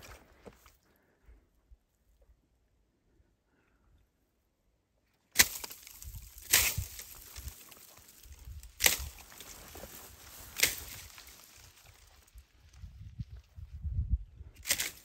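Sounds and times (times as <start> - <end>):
sharp snaps of branches: 5.3 - 12.0, 14.6 - 15.0
brush rustling: 5.4 - 12.9.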